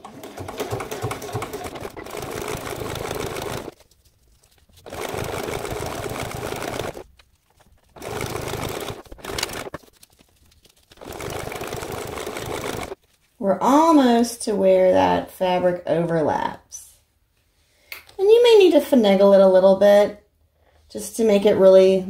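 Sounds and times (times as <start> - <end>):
sewing machine stitching: 0.0 - 3.8, 4.8 - 7.1, 7.9 - 9.8, 11.0 - 13.0.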